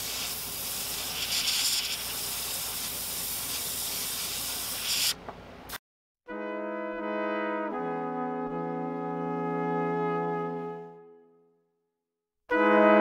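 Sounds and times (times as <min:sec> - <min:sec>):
airbrush spraying hiss: 0:00.0 - 0:05.2.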